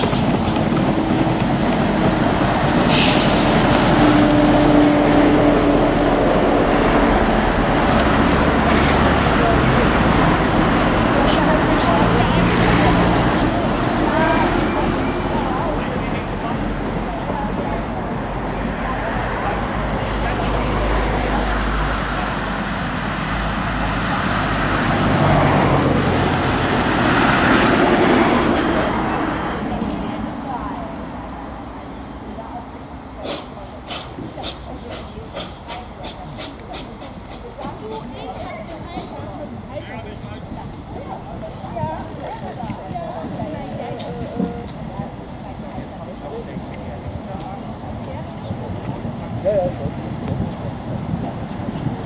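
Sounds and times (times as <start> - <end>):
cars passing: 0.0 - 52.0
steady road traffic: 0.0 - 52.0
steam locomotive rolling on track: 0.0 - 52.0
short steam hiss: 2.9 - 3.8, 33.2 - 37.4.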